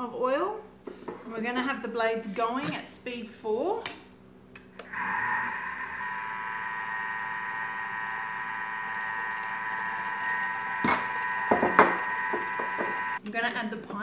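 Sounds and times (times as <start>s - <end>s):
kitchen mixer motor whine: 4.8s - 13.2s.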